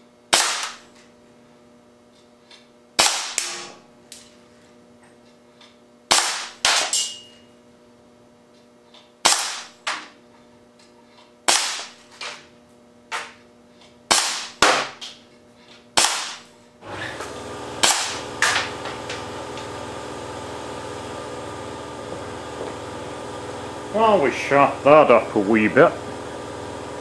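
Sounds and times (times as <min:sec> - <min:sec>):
steady multi-tone hum: 0:00.0 - 0:27.0
air cannon shots cracking: 0:00.3 - 0:00.8, 0:03.0 - 0:03.7, 0:06.1 - 0:07.0, 0:09.2 - 0:09.8, 0:11.5 - 0:12.0, 0:14.1 - 0:15.0, 0:16.0 - 0:16.4, 0:17.8 - 0:18.8.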